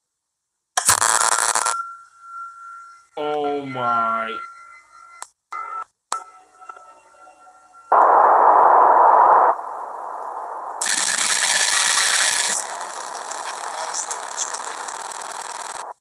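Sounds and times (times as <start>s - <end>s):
harsh distorted static noise: 0.9s - 1.8s, 7.9s - 16.0s
bright hiss: 8.0s - 15.5s.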